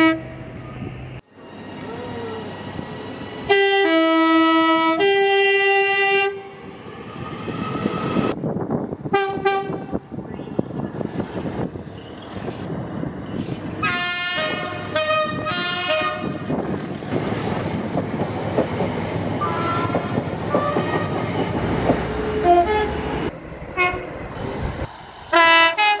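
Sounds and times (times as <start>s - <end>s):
train horn blasts: 0.0s - 0.3s, 3.5s - 6.5s, 9.1s - 10.0s, 13.8s - 16.5s, 19.4s - 21.3s, 22.3s - 23.0s, 23.8s - 24.1s, 25.3s - 26.0s
passing train rumble: 0.0s - 26.0s.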